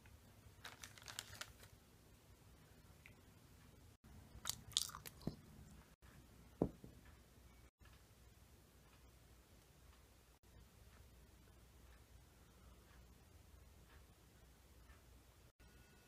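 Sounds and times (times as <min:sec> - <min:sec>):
cracker crunching: 0:00.6 - 0:01.7, 0:04.4 - 0:05.3.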